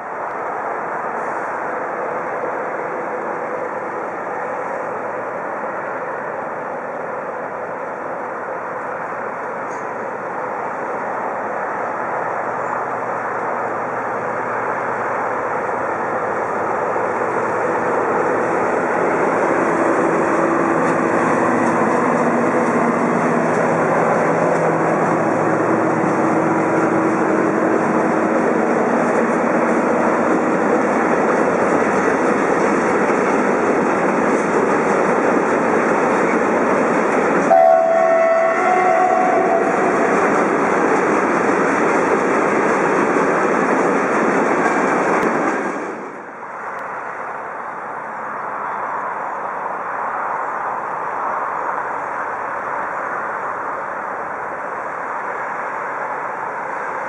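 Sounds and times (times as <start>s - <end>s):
diesel locomotive drone: 0.0s - 57.0s
train wheel rumble and rail clatter: 0.0s - 57.0s
brief high tone: 37.5s - 40.1s.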